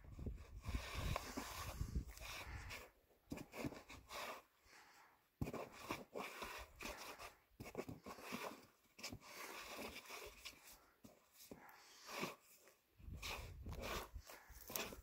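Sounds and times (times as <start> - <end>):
shoes and clothing scraping rock: 0.2 - 4.5, 5.4 - 15.0.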